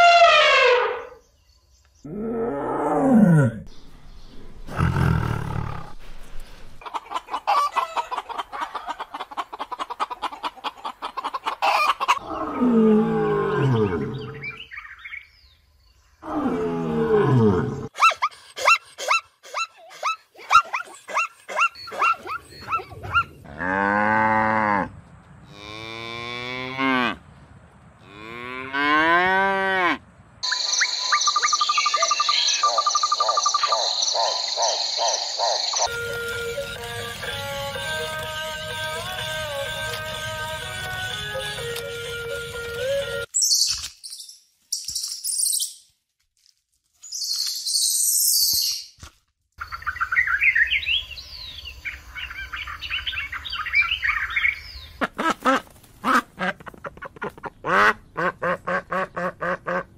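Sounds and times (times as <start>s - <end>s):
elephant trumpeting: 0.0s - 1.2s.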